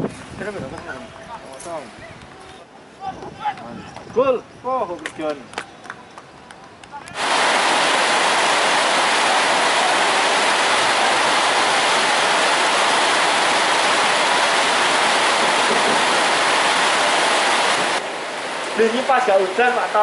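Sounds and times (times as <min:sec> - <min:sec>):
loud steady hiss: 0:07.1 - 0:20.0.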